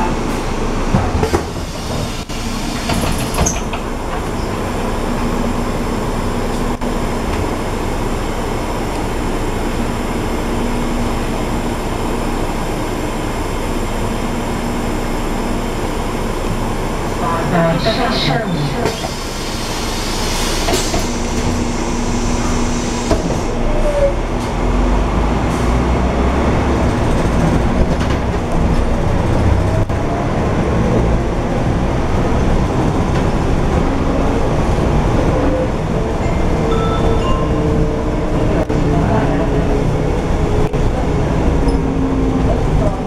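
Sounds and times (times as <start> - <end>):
bus engine drone: 0.0 - 43.0
air hiss of doors closing: 18.9 - 23.4.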